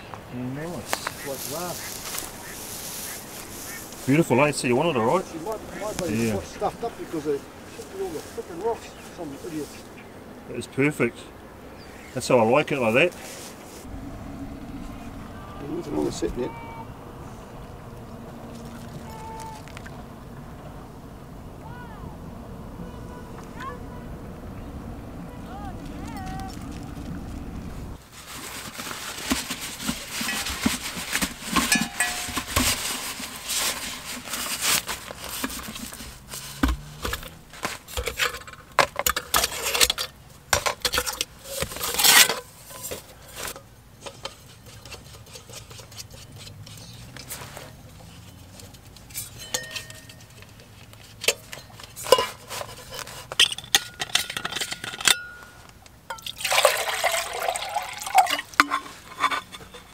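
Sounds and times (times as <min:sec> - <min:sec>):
fabric sack rustling: 0:28.0 - 0:37.9
metal pot clinking: 0:30.1 - 0:33.5, 0:49.0 - 0:59.9
water pouring into pot: 0:56.1 - 0:58.6.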